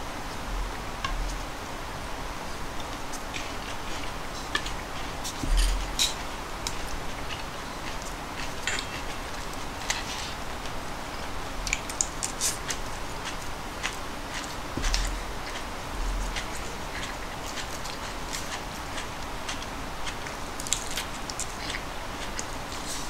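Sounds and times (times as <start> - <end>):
background hiss: 0.0 - 23.0
chopsticks clicking on dishes: 5.6 - 9.2.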